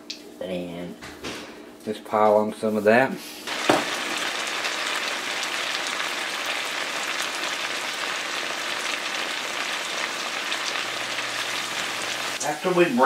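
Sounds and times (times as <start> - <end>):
potatoes sizzling in skillet: 3.5 - 12.5.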